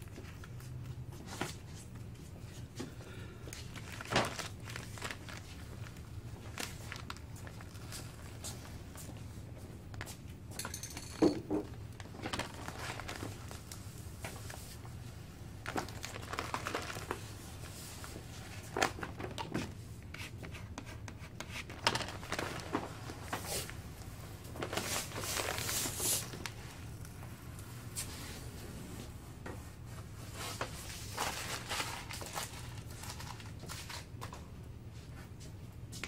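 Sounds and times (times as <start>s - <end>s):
paper crinkling and rustling: 0.0s - 9.3s, 11.8s - 20.5s, 21.3s - 27.3s, 29.9s - 34.5s.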